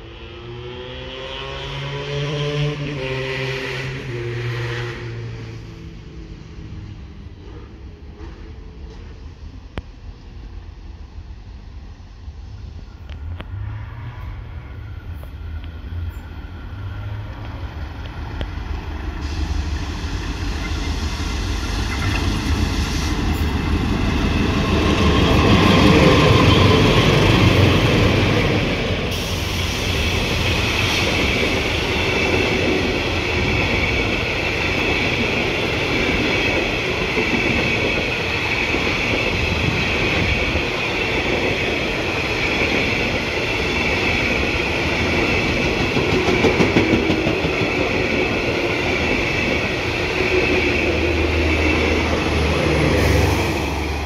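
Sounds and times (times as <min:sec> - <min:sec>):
train passing: 0:00.0 - 0:54.0.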